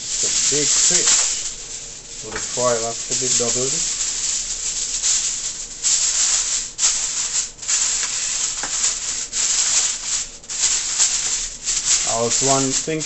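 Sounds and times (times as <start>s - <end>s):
aluminium foil crinkling: 0.0s - 13.0s.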